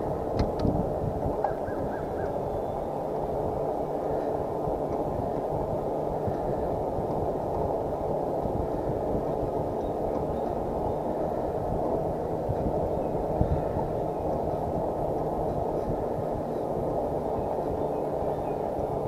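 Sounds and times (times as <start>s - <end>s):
wind and road noise: 0.0s - 19.0s.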